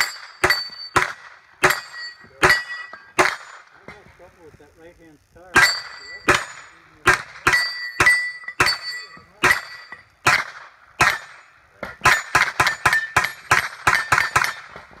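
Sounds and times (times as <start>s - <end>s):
steel targets clanging: 0.0s - 4.0s, 5.5s - 15.0s
gunshots: 0.0s - 4.2s, 5.6s - 8.8s, 9.4s - 15.0s.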